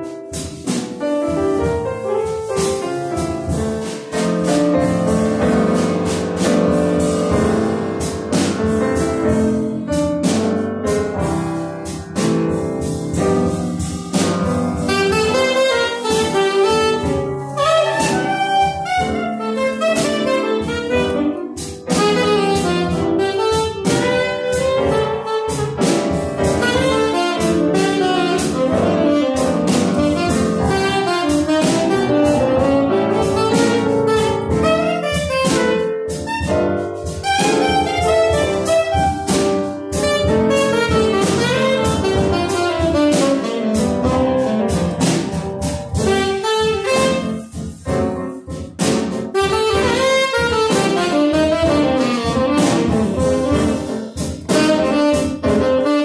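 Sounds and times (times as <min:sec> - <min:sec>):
piano chords: 0:00.0 - 0:56.0
saxophone melody: 0:14.8 - 0:48.4, 0:49.2 - 0:56.0.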